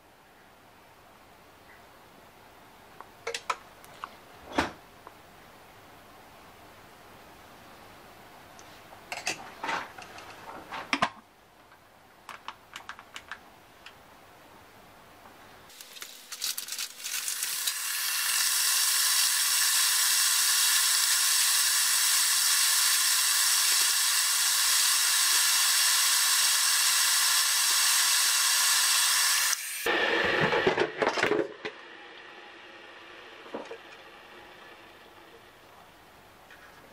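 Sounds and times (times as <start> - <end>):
kettle heating water hiss: 15.7 - 30.9, 31.6 - 36.5.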